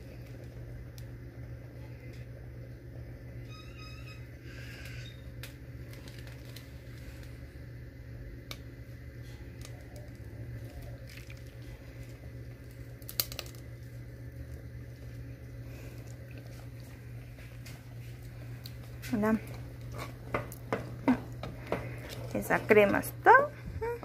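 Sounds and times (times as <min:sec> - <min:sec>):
steady low hum: 0:00.0 - 0:24.0
cream squishing from plastic bag: 0:05.8 - 0:07.4, 0:09.5 - 0:19.3.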